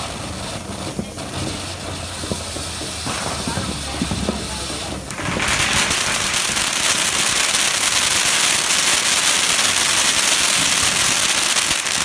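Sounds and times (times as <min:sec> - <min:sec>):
firework hissing and crackling: 0:00.0 - 0:12.0.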